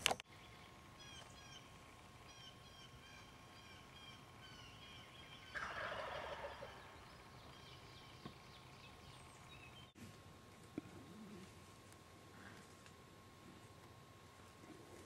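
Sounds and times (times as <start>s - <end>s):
small birds chirping: 0.3s - 5.8s, 6.4s - 10.0s
turkey gobbling: 2.2s - 7.0s.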